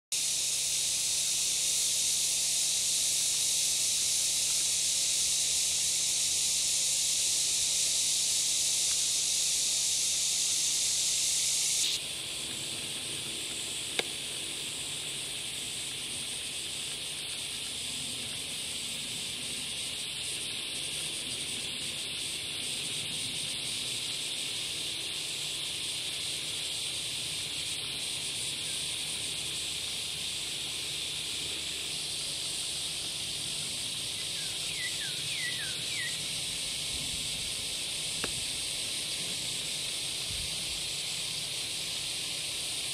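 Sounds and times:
insect chorus hissing: 0:00.0 - 0:42.9
sharp click: 0:38.2 - 0:38.4.

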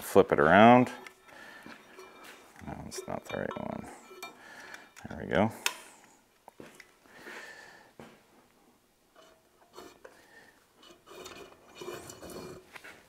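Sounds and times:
wire scraping through stripper: 0:10.8 - 0:13.0.

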